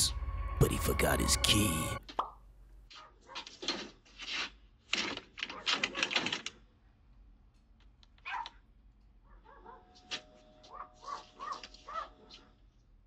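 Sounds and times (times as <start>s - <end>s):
dog barking and yipping: 2.9s - 3.6s, 5.5s - 6.1s, 8.2s - 8.6s, 9.3s - 10.0s, 10.7s - 12.5s.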